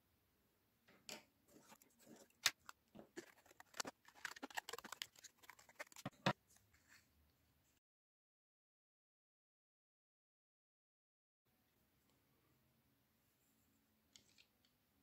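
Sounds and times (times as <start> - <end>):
scissors snipping paper: 1.6 - 6.4.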